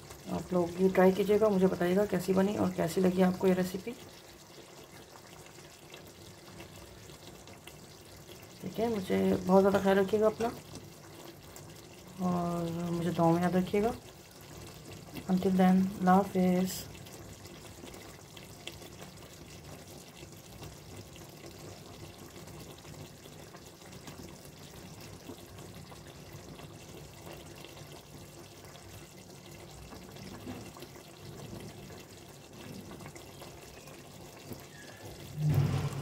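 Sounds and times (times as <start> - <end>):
curry bubbling in a pot: 0.0 - 36.0.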